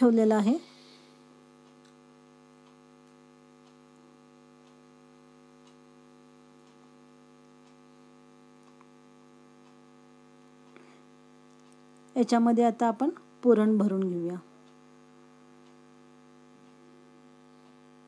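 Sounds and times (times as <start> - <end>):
electrical hum: 0.0 - 18.0.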